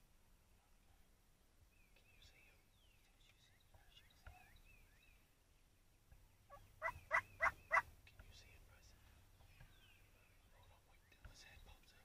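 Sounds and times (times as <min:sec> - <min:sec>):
faint bird chirps: 0:01.6 - 0:12.0
turkey gobbling: 0:06.5 - 0:07.9.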